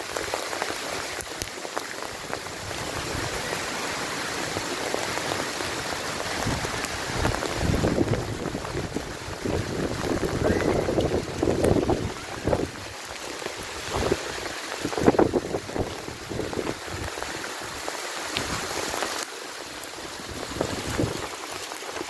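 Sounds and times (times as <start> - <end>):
hailstones pelting road and cars: 0.0 - 22.0
wind buffeting microphone: 6.2 - 12.9, 13.7 - 17.3, 20.2 - 21.3.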